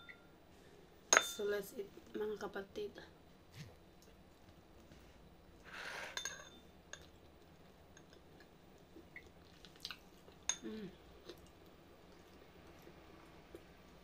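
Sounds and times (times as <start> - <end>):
soft chewing: 6.9 - 14.0.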